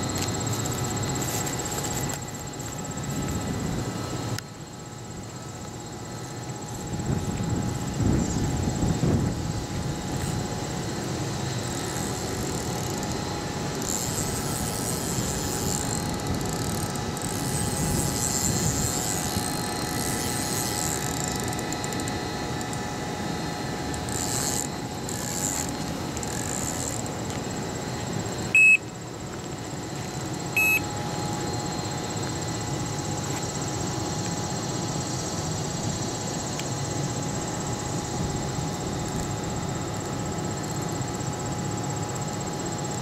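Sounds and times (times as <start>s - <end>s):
steady background hum: 0.0s - 43.0s
short electronic beeps: 28.5s - 28.8s, 30.5s - 30.9s.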